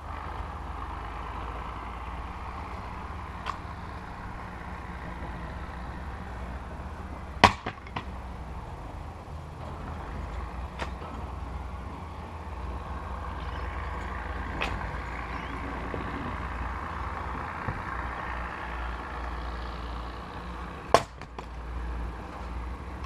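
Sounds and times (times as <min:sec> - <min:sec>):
maul splitting log crack: 0:07.4 - 0:08.2, 0:10.7 - 0:11.2, 0:20.9 - 0:21.6.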